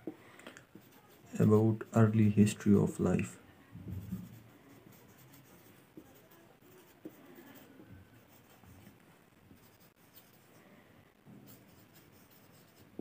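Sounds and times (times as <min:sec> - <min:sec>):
marker scratching on whiteboard: 0:00.7 - 0:02.1, 0:04.0 - 0:10.6, 0:11.4 - 0:13.0.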